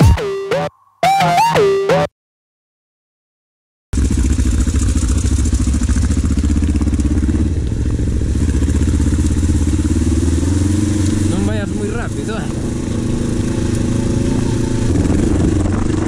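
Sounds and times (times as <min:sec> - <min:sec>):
motorcycle engine at low revs: 0:04.0 - 0:16.0.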